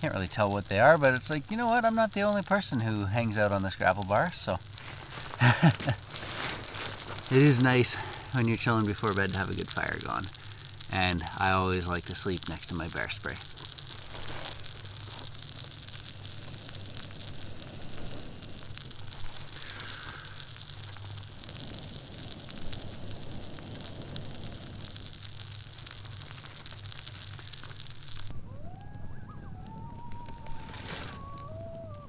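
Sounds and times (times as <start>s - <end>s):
campfire crackling and hissing: 0.0s - 32.0s
person blowing into embers: 4.6s - 11.4s, 13.4s - 32.0s.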